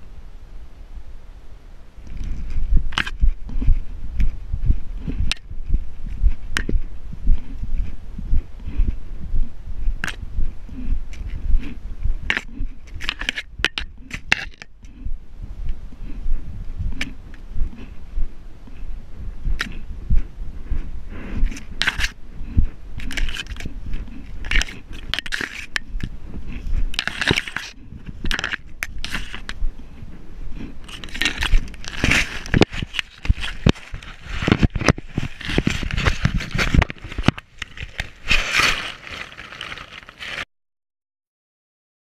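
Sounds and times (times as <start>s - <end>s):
teeth crunching on plastic: 10.0s - 15.0s, 21.4s - 29.6s, 30.5s - 40.4s.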